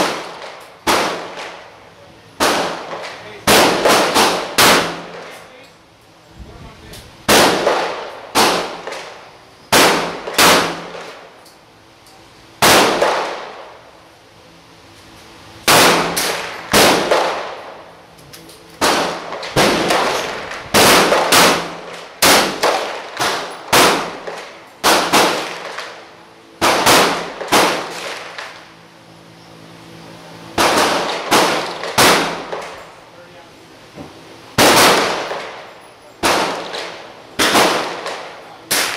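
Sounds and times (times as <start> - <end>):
rifle shots ringing indoors: 0.0 - 1.6, 2.4 - 5.5, 7.2 - 11.2, 12.6 - 13.8, 15.6 - 17.8, 18.8 - 28.6, 30.6 - 32.8, 34.5 - 38.9.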